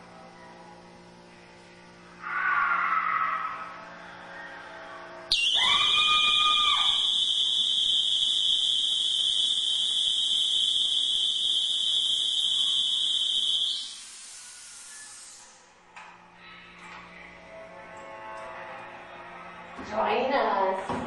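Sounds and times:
lower alarm tone: 0:05.3 - 0:14.0
high-pitched electronic alarm tone: 0:05.3 - 0:14.2.

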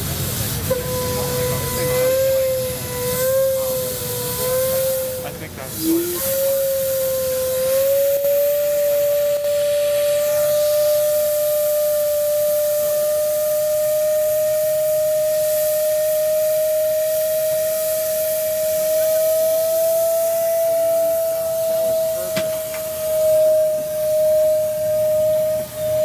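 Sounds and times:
steam whistling and hissing: 0:00.0 - 0:26.0.

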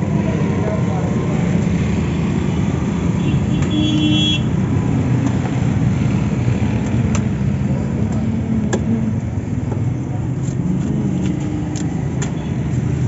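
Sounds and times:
street traffic noise: 0:00.0 - 0:13.0
vehicle horn toot: 0:03.2 - 0:04.5.

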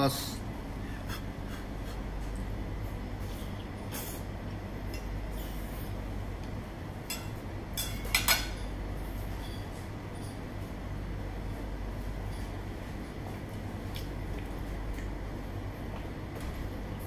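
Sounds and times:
steady low hum: 0:00.0 - 0:17.0
knife and fork clinking on plate: 0:07.1 - 0:08.8.

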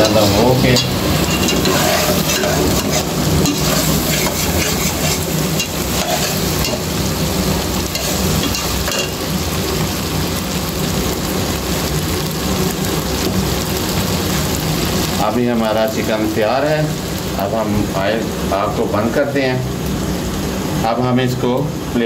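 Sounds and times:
metal spatula stirring in pot: 0:00.0 - 0:07.0, 0:07.9 - 0:09.2
chicken sizzling in oil: 0:00.0 - 0:22.0.

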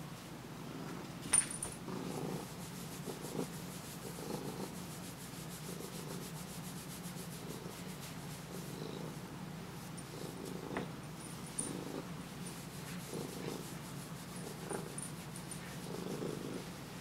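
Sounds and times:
cat purring: 0:01.8 - 0:04.9, 0:07.3 - 0:09.3, 0:10.0 - 0:12.2, 0:12.9 - 0:17.0
hand rubbing cat fur: 0:02.0 - 0:17.0.

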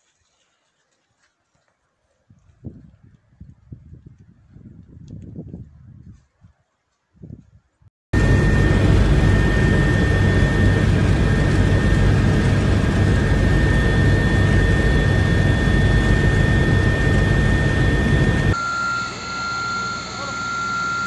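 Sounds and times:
aircraft engine noise: 0:08.2 - 0:21.0
constant high whine: 0:08.2 - 0:21.0.

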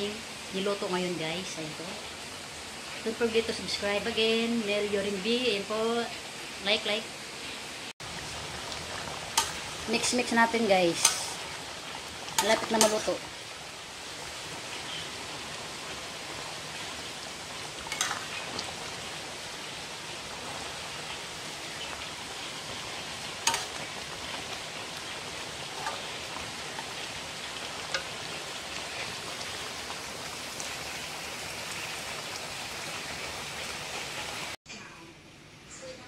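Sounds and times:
curry simmering in metal pan: 0:07.4 - 0:34.6.

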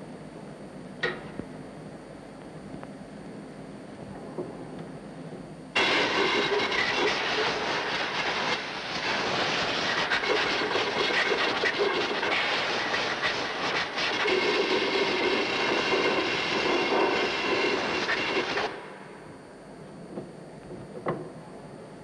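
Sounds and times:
compressed air hissing: 0:05.8 - 0:14.6.

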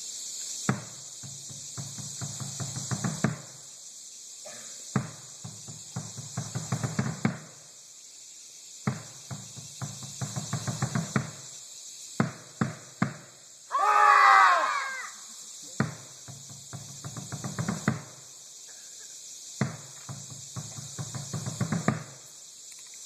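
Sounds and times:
drum beaten: 0:05.0 - 0:07.4
wavering cry falling in pitch: 0:13.7 - 0:15.2.

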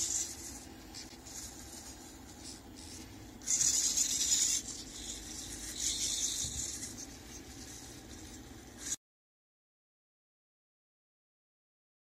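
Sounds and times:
low steady hum: 0:00.0 - 0:09.0
marker scratching on paper: 0:00.0 - 0:09.0.

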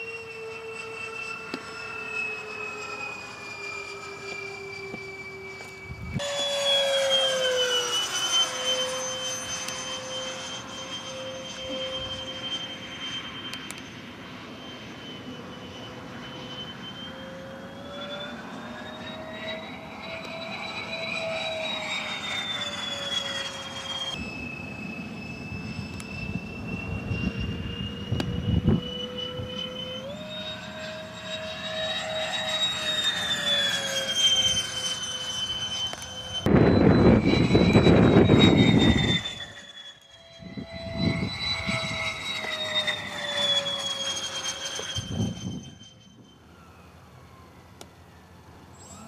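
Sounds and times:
electric ducted fans whining: 0:00.0 - 0:49.0.

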